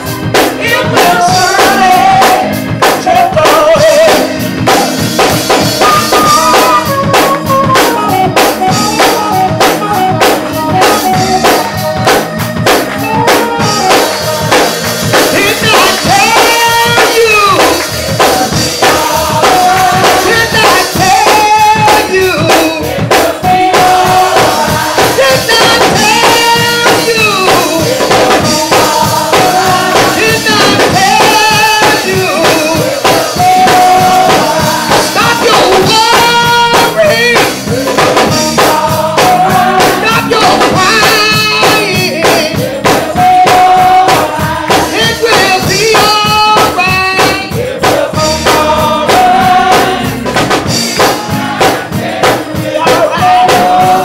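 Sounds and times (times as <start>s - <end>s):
band playing gospel music: 0.0s - 54.0s
fast drum hits: 0.0s - 54.0s
woman singing into microphone: 0.6s - 4.3s, 13.1s - 50.0s.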